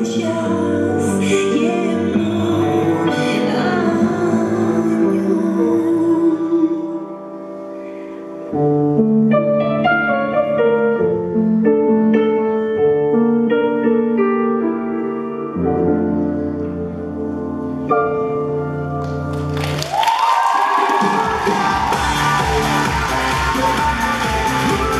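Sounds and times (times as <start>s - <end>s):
instrumental piano music: 0.0s - 19.9s.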